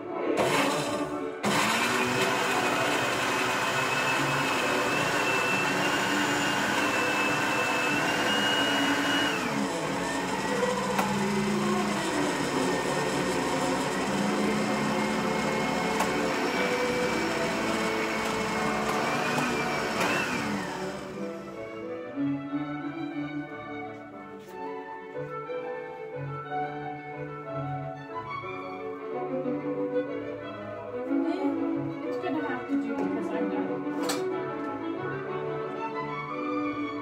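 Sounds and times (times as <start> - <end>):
blender motor whine: 0.4 - 21.8.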